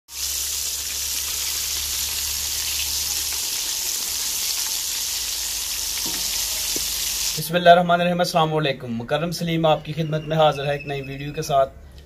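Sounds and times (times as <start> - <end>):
chicken deep-frying in oil: 0.1 - 7.4.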